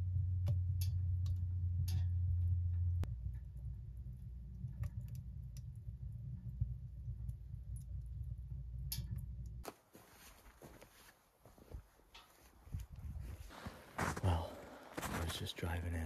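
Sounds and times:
quiet outdoor background: 0.0s - 16.0s
wood stove burning rumble: 0.0s - 16.0s
light clicks and ticks: 12.1s - 13.0s.

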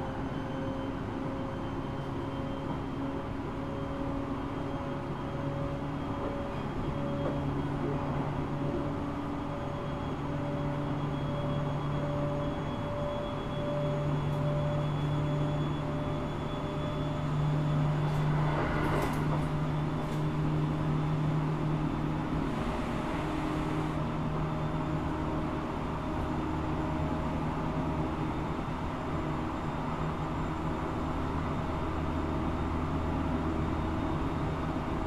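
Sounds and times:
train rolling noise: 4.1s - 12.0s, 17.1s - 29.5s.

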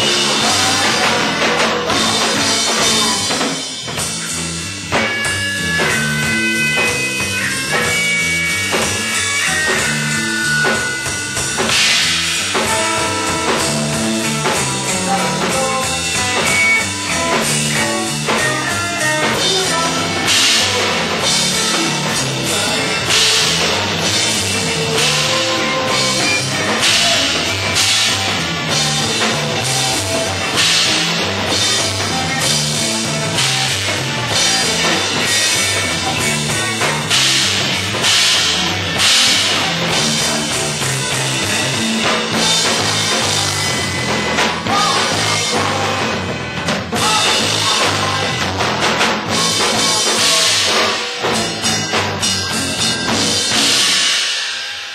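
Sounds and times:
held electric guitar notes: 0.0s - 54.2s
funk-rock band playing: 0.0s - 54.9s
cymbal crashes: 53.0s - 54.9s.

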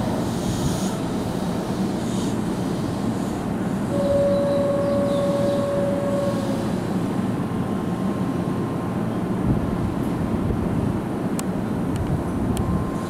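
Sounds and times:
train equipment low rumble: 0.0s - 13.0s
steady tone: 3.9s - 8.1s.

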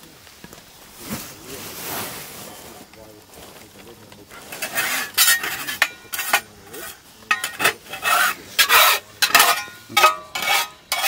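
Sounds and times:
metal spatula scraping frying pan: 4.4s - 11.0s.

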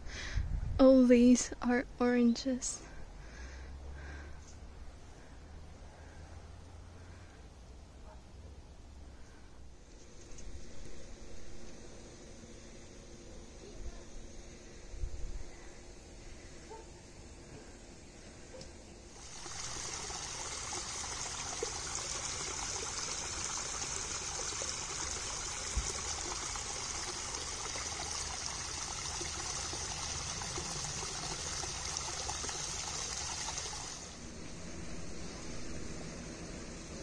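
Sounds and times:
stream trickling over rocks: 19.2s - 34.2s.

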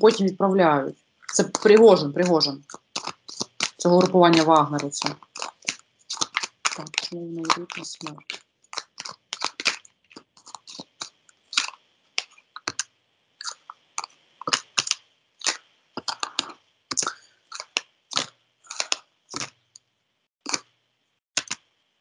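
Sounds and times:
cards being shuffled: 1.3s - 12.8s.

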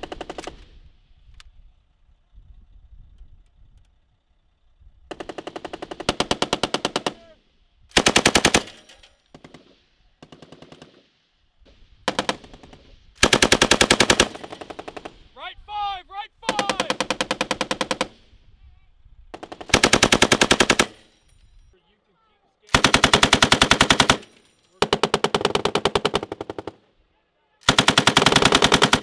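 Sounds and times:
machine gun automatic fire: 0.0s - 0.8s, 5.1s - 7.3s, 7.9s - 11.2s, 12.0s - 15.3s, 16.5s - 18.3s, 19.3s - 21.1s, 22.7s - 26.8s, 27.6s - 29.0s
person shouting: 15.4s - 17.0s.

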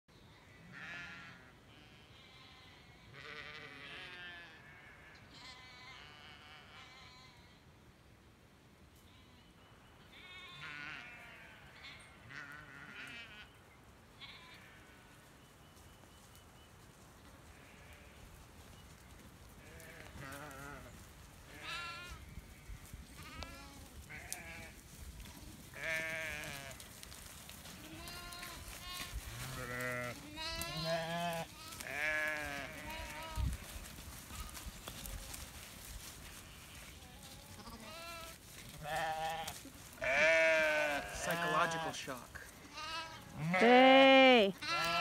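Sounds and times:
sheep bleating: 0.5s - 7.6s, 10.1s - 13.6s, 14.2s - 15.1s, 17.6s - 18.2s, 19.6s - 20.9s, 21.5s - 22.2s, 23.1s - 24.8s, 25.7s - 26.8s, 27.8s - 35.4s, 36.4s - 45.0s.

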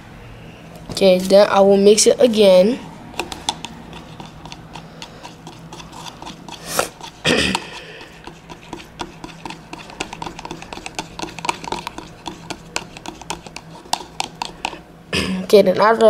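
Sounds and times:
stirring rod scraping plastic cup: 3.2s - 14.8s.

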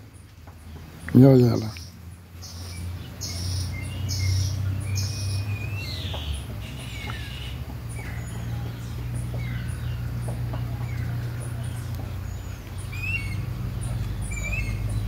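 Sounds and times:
bird chirps: 0.0s - 15.0s
chickens clucking: 6.0s - 15.0s.

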